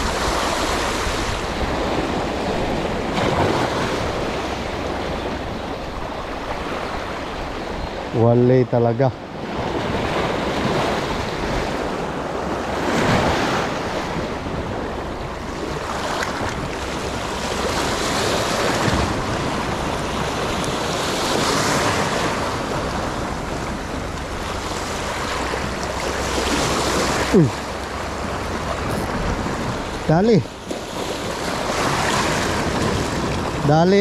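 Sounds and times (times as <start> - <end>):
sea waves washing in: 0.0 - 34.0
wind buffeting microphone: 9.2 - 34.0.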